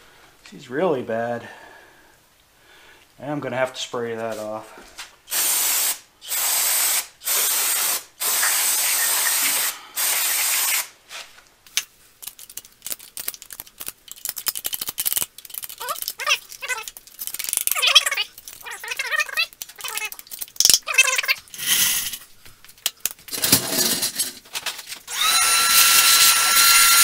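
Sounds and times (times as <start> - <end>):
aerosol spray can hissing: 5.3 - 10.9.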